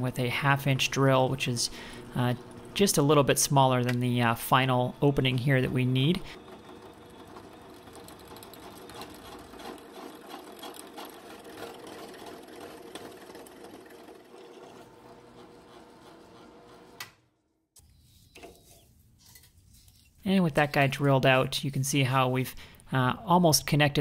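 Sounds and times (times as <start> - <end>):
drill press hum: 0.0 - 17.2
paintbrush sweeping: 17.8 - 21.9.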